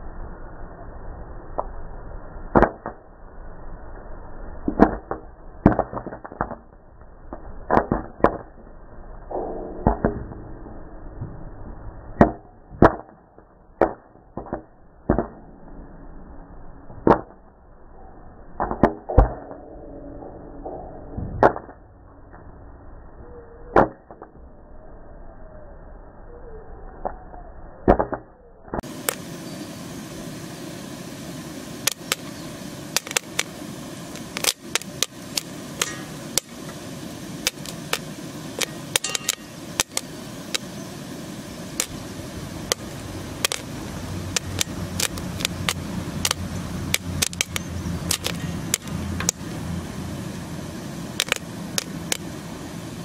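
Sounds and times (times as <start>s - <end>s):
steady low hiss: 0.0s - 15.2s, 28.8s - 53.0s
popcorn popping: 4.7s - 8.6s, 12.2s - 15.4s, 28.8s - 29.3s, 31.7s - 49.6s, 50.6s - 52.4s.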